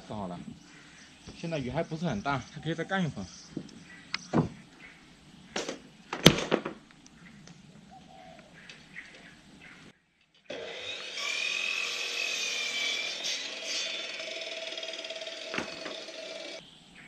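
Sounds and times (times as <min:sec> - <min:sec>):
power saw cutting wood: 0:10.5 - 0:16.6
wooden boards clattering: 0:15.4 - 0:16.1.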